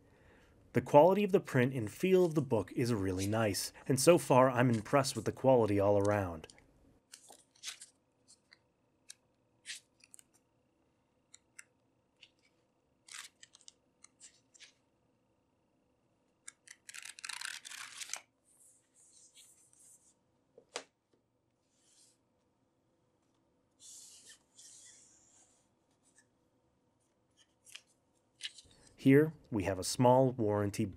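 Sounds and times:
book pages rustling: 3.1s - 6.5s, 7.1s - 10.4s, 12.2s - 14.8s, 16.6s - 20.9s, 27.3s - 29.0s.

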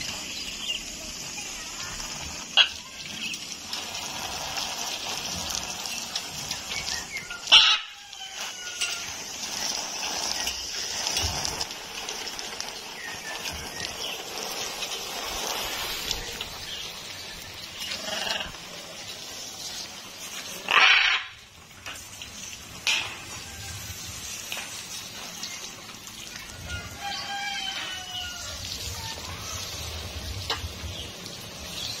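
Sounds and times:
water spraying: 0.0s - 32.0s
parrot harsh short call: 20.7s - 21.4s.

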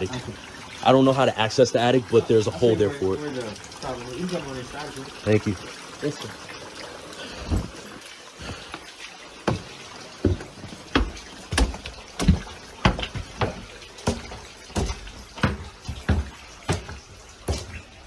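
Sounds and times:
boot footsteps on wooden stairs: 9.4s - 18.0s.

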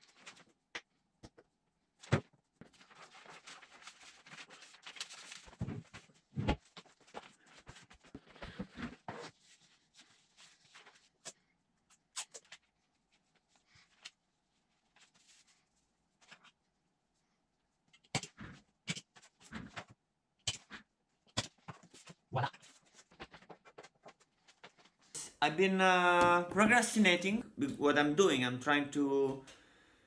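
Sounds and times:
paper rustling: 0.0s - 0.6s, 2.0s - 16.6s, 21.6s - 25.1s.

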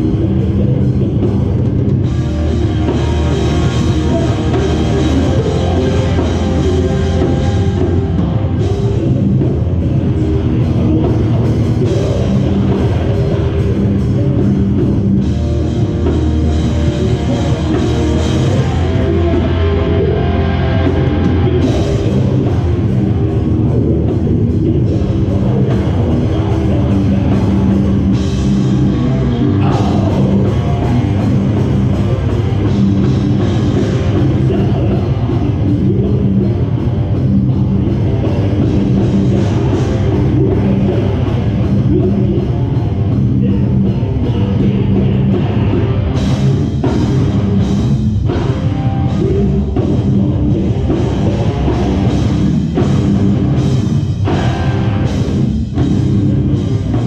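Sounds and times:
metalcore band playing live: 0.0s - 57.0s.

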